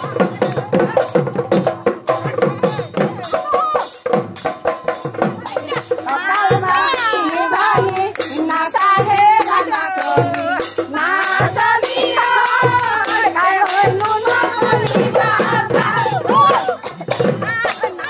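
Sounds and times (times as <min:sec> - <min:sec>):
drum beats: 0:00.0 - 0:18.0
women singing a folk song: 0:05.6 - 0:18.0
hand clapping: 0:06.6 - 0:14.4, 0:17.4 - 0:18.0.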